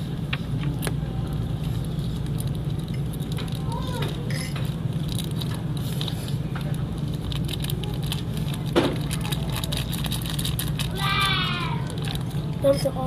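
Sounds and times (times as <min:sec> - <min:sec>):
low background hum: 0:00.0 - 0:13.0
plastic packet crinkling: 0:00.8 - 0:13.0.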